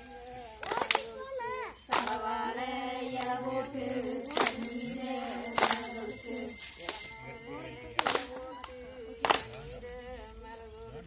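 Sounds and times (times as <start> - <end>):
hand claps: 0.6 - 1.2, 1.9 - 2.3, 2.9 - 7.3, 7.9 - 9.7
women singing in unison: 1.8 - 7.1.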